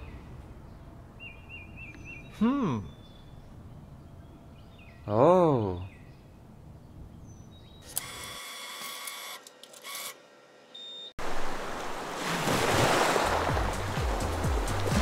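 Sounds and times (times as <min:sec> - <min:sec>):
cash machine note slot whirring: 0:07.8 - 0:10.3
sea waves rushing: 0:11.2 - 0:15.0.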